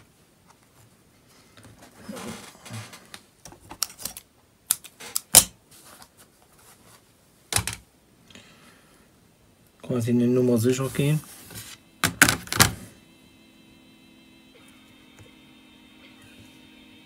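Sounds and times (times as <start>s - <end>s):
soft rustling: 5.7s - 7.2s.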